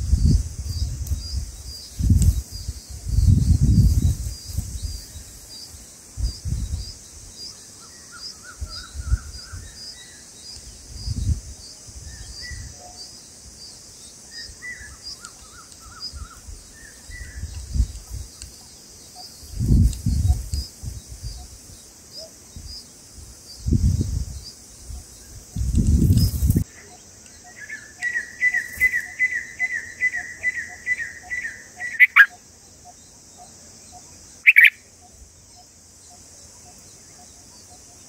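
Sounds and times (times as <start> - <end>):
wind rumble on microphone: 0.0 - 5.4, 6.1 - 7.4, 8.5 - 9.8, 10.6 - 12.9, 15.8 - 18.5, 19.4 - 21.8, 22.5 - 26.7
soft bird chirps: 23.5 - 38.0
high repeating chirp: 31.9 - 32.3, 34.5 - 34.8.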